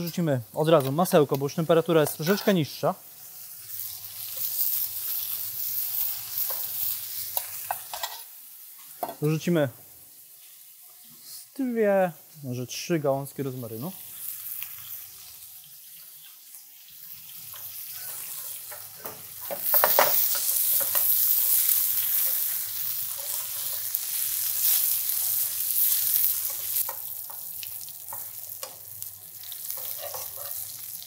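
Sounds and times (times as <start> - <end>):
meat sizzling in a pan: 0.0 - 31.0
metal tongs clicking on pan: 17.5 - 24.0, 26.4 - 28.8, 29.5 - 30.6.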